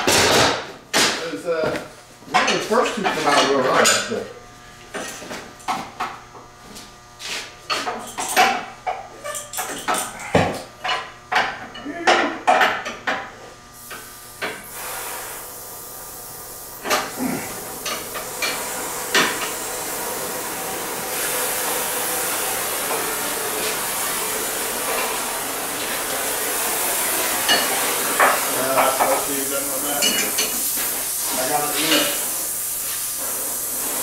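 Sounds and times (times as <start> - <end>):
hand torch hissing: 13.8 - 34.0.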